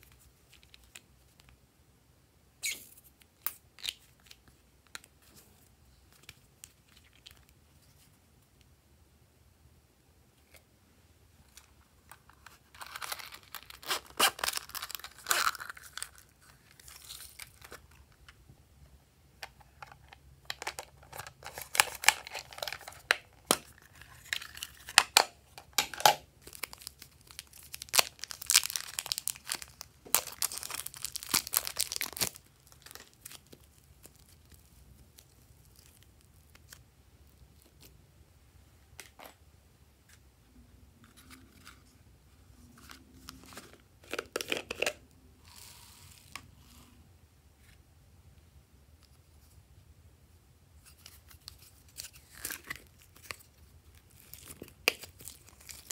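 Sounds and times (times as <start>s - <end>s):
plastic packaging crinkling: 11.6s - 18.0s, 19.8s - 36.8s, 50.9s - 55.9s
packaging tearing: 12.7s - 17.8s, 26.0s - 34.6s.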